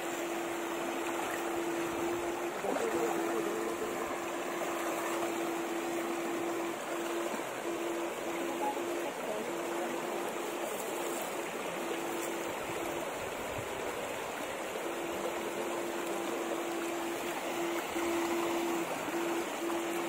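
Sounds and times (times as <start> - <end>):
river water rushing over stones: 0.0 - 20.0
steady hum: 0.0 - 20.0
splashing in water: 0.2 - 13.5.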